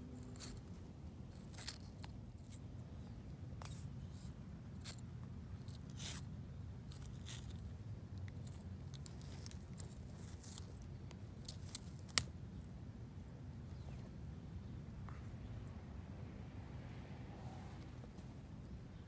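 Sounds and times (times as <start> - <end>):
tortoise chewing crunches: 0.1 - 12.8.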